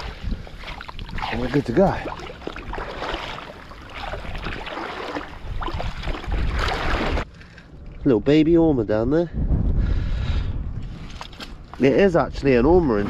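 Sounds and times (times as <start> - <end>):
water sloshing around wading legs: 0.0 - 7.3.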